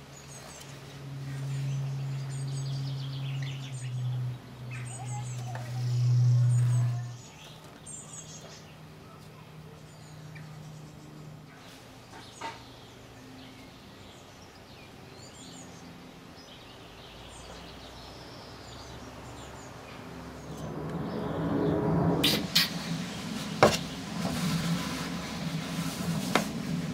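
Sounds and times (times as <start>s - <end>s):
steady low hum: 0.0s - 26.9s
faint high bird chirps: 0.2s - 15.9s.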